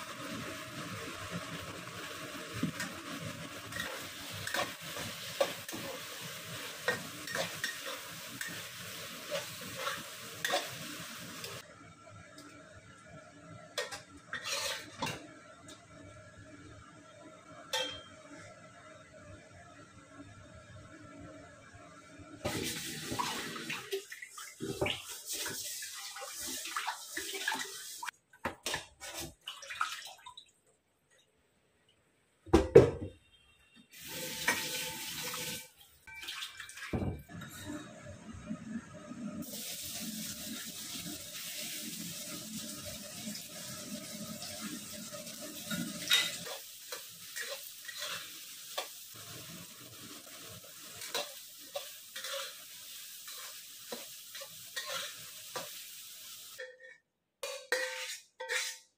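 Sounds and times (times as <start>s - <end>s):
spatula scraping in a wok: 3.6s - 10.8s, 14.3s - 15.1s, 42.2s - 49.5s, 50.6s - 55.9s, 56.5s - 58.9s
dishes and pots clattering: 3.7s - 6.0s, 6.8s - 8.7s, 9.3s - 10.8s, 13.8s - 15.3s, 17.7s - 18.2s, 36.1s - 37.9s, 45.6s - 48.9s, 53.3s - 55.8s, 56.6s - 58.9s
tap water running into sink: 22.5s - 28.1s, 34.0s - 37.2s.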